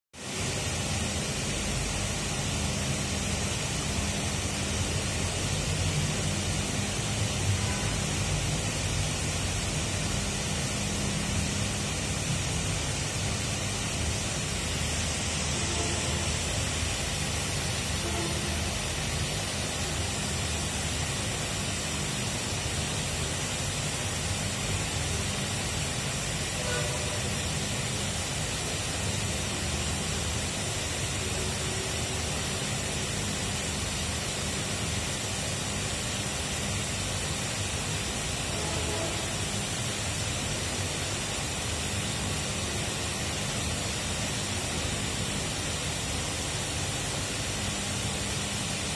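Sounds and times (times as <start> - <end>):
even hiss: 0.2 - 48.9.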